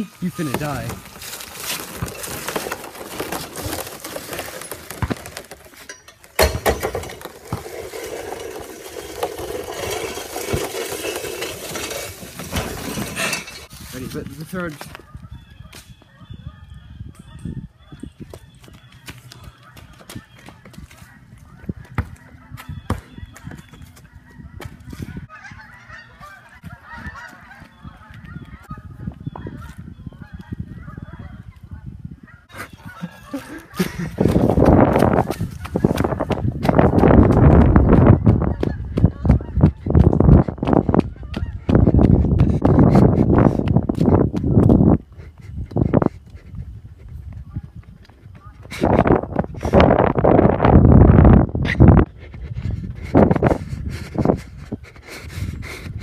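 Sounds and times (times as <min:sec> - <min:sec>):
footsteps crackling through dry leaves: 0:00.0 - 0:05.8, 0:13.7 - 0:15.2
running footsteps on gravel: 0:00.0 - 0:06.3, 0:18.1 - 0:25.6, 0:26.2 - 0:29.8, 0:32.6 - 0:50.6
wheeled machine running: 0:01.6 - 0:13.7
geese honking: 0:19.4 - 0:31.4, 0:32.2 - 0:34.3, 0:37.8 - 0:40.0, 0:41.0 - 0:42.3.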